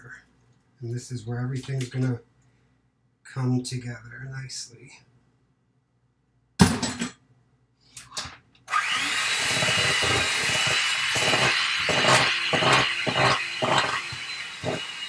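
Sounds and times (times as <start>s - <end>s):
electric hand mixer whining: 8.7s - 15.0s.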